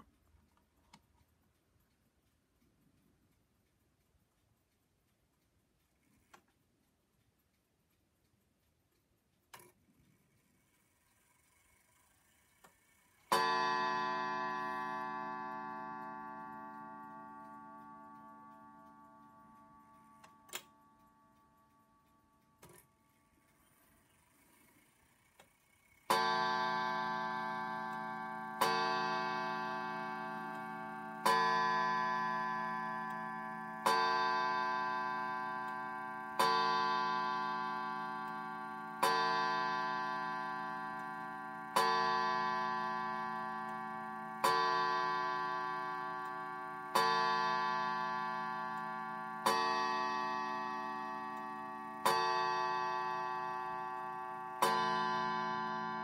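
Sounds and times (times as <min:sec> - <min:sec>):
clock striking on gong: 0:13.3 - 0:22.8, 0:26.1 - 0:56.0.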